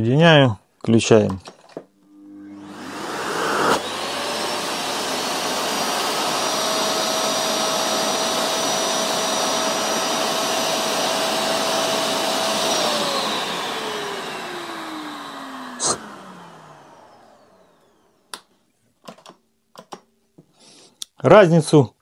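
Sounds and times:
vacuum cleaner motor whining: 2.0 - 18.4.

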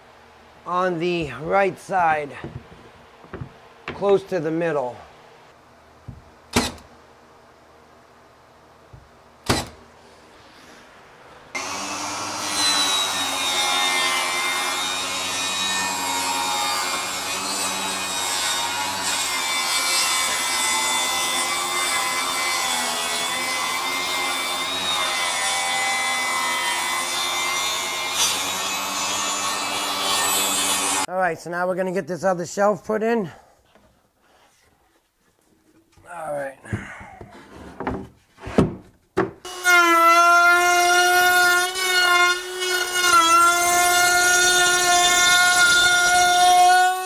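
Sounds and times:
table saw cutting wood: 11.6 - 31.1, 39.5 - 47.0.

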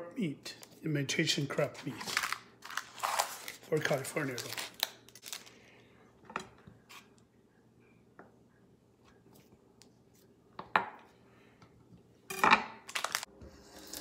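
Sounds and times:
plastic package rustling: 1.8 - 5.6, 12.9 - 13.3.

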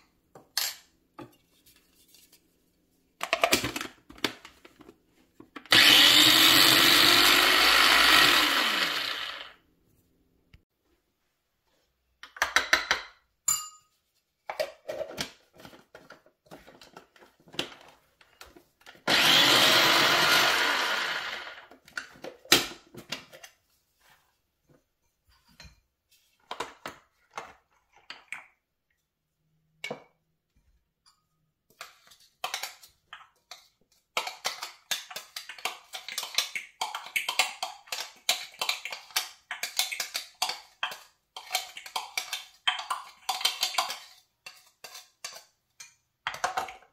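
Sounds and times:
electric food chopper running: 5.7 - 9.6, 19.0 - 21.7.

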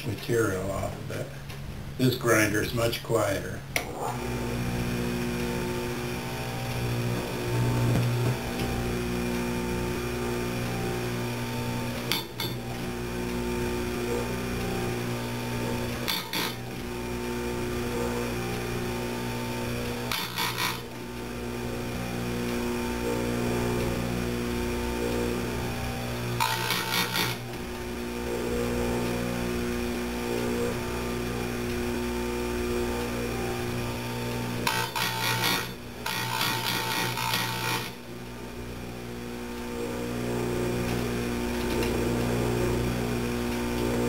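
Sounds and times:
grinder motor humming: 3.8 - 44.0
grinding wheel on metal: 10.7 - 31.9, 33.3 - 38.2
grinding on metal: 12.0 - 12.6, 15.2 - 17.5, 19.5 - 21.1, 25.9 - 29.4, 34.3 - 38.0.

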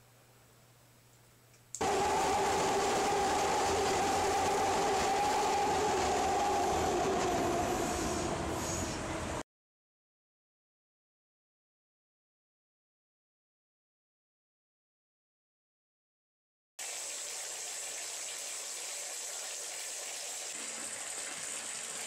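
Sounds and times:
train rumbling over steel bridge: 1.8 - 9.4.

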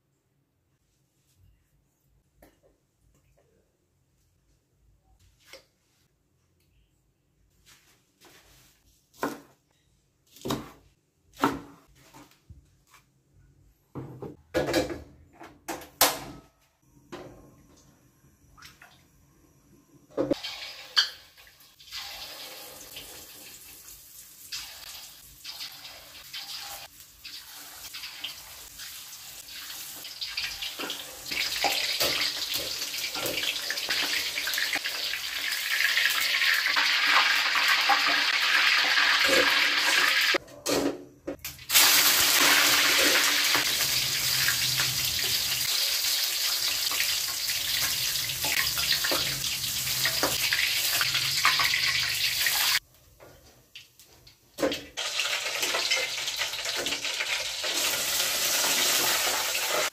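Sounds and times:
food deep-frying in hot oil: 20.3 - 40.4, 41.4 - 52.8, 53.7 - 59.9.

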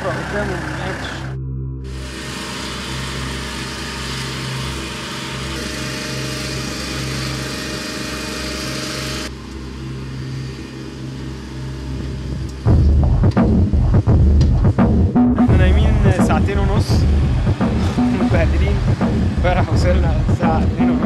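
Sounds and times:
small engine humming: 0.0 - 14.8.

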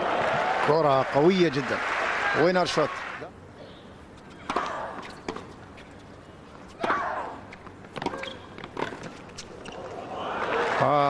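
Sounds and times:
faint crowd hum: 0.0 - 11.0
rackets striking tennis ball: 4.2 - 6.1, 6.7 - 9.8.

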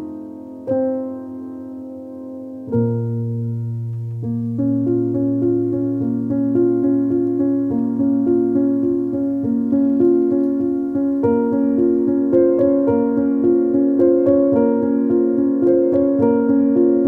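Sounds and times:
background piano music: 0.0 - 17.0.

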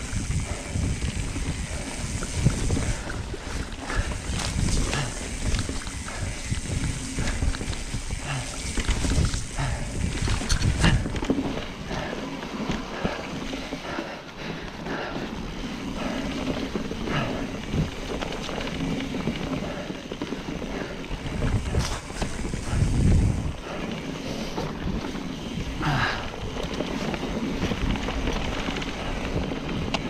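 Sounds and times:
wind on microphone: 0.0 - 12.1, 21.2 - 23.8
bike rattling over bumps: 0.0 - 30.0
bike tyre noise: 0.0 - 30.0.

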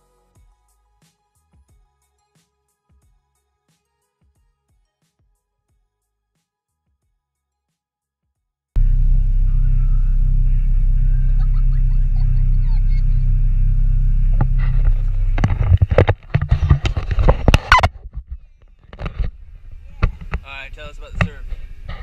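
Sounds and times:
van engine rumble: 8.8 - 18.5, 19.1 - 22.0
camera knocking and rattling: 14.4 - 20.5.

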